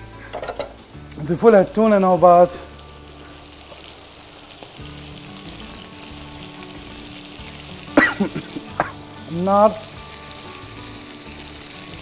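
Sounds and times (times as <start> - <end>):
meat sizzling in oil: 0.0 - 12.0
person speaking: 9.3 - 9.8.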